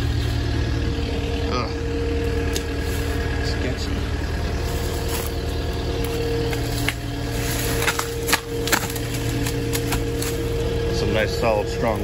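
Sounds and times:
engine idling: 0:00.0 - 0:12.0
footsteps on dry sticks: 0:02.3 - 0:10.7.

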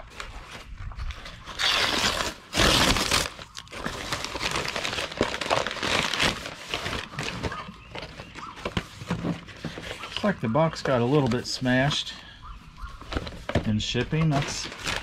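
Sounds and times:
crumpled paper rustling: 0:00.0 - 0:12.2, 0:12.8 - 0:15.0
paper ripping: 0:01.4 - 0:07.7, 0:14.2 - 0:15.0.

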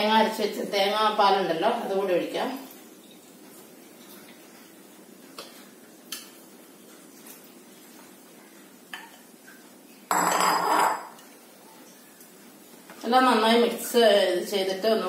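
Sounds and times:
vessel knocking against pot: 0:10.1 - 0:11.2.

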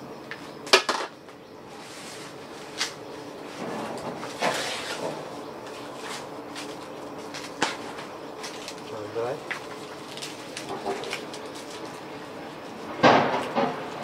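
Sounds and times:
leaves rustling and tearing: 0:04.2 - 0:12.3.

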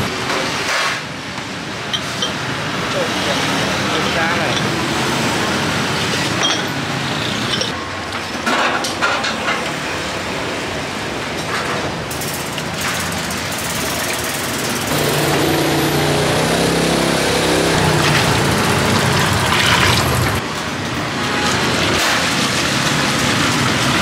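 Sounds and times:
motor hum: 0:14.8 - 0:20.4
water pouring from ladle: 0:18.0 - 0:20.4.

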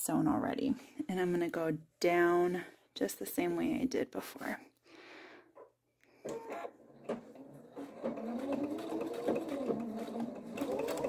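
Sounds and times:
sewing machine running: 0:06.2 - 0:11.0.

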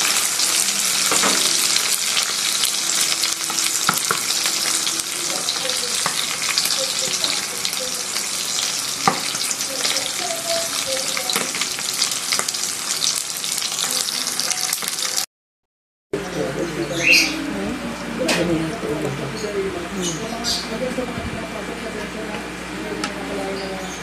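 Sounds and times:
oil sizzling in frying pan: 0:00.0 - 0:15.3.

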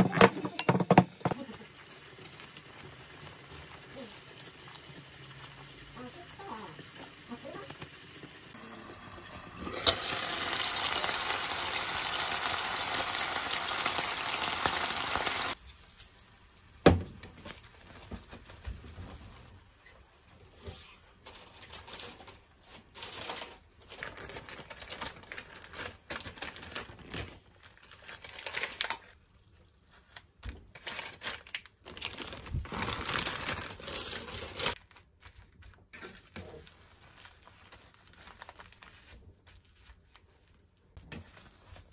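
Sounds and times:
food sizzling in a frying pan: 0:01.2 - 0:15.9
cling film crinkling: 0:21.2 - 0:41.9.

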